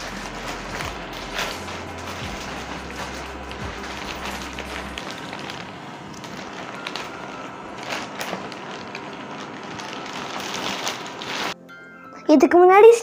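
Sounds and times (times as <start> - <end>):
plastic wrap crinkling: 0.0 - 11.6.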